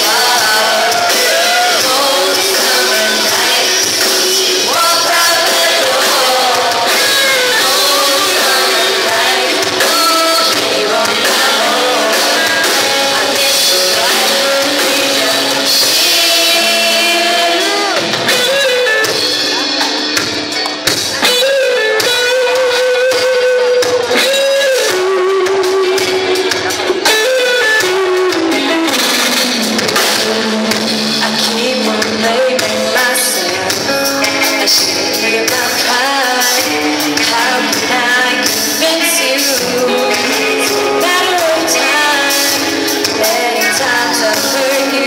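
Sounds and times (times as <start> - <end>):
women singing: 0.0 - 18.6, 31.2 - 45.0
bass guitar: 0.0 - 45.0
drum kit: 0.0 - 45.0
electric guitars: 0.0 - 45.0.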